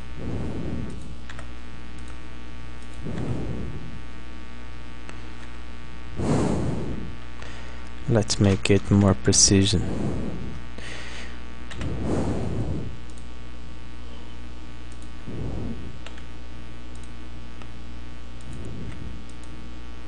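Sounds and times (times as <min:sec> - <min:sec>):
soft low rushes of noise: 0:00.0 - 0:01.6, 0:03.0 - 0:04.6, 0:09.7 - 0:10.7, 0:11.7 - 0:13.1, 0:15.2 - 0:16.3, 0:18.4 - 0:19.6
low electrical hum: 0:00.0 - 0:20.0.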